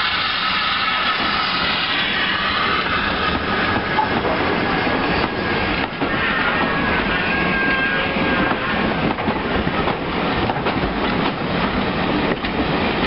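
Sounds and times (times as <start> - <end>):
steam locomotive passing: 0.0 - 13.0
wheels clattering over rail joints: 2.9 - 13.0.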